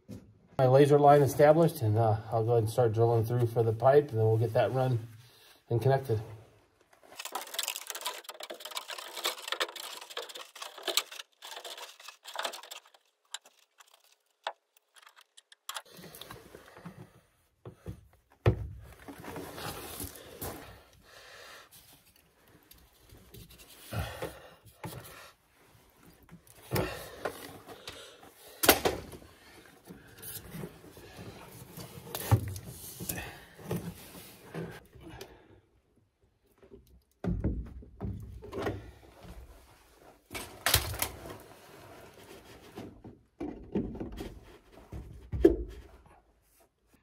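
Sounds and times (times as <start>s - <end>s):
hand tool clicking and creaking: 7.1s - 16.3s.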